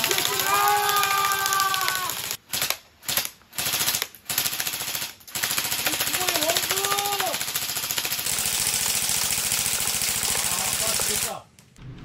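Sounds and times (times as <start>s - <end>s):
toy pellet gun firing: 5.8s - 11.3s.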